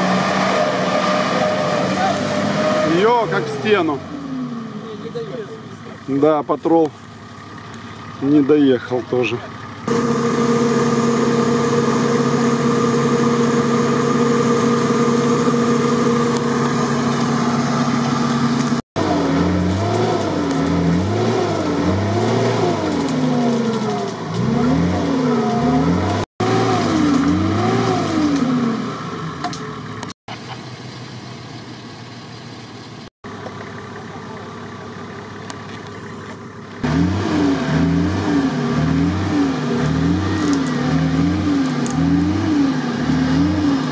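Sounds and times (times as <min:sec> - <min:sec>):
truck engine revving: 0:00.0 - 0:05.8, 0:09.2 - 0:30.1, 0:36.8 - 0:43.9.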